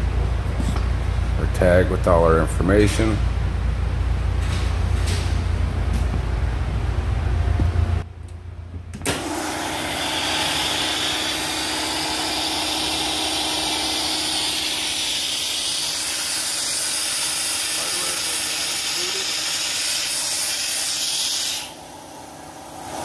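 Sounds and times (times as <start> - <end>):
electric air compressor running: 9.0 - 23.0.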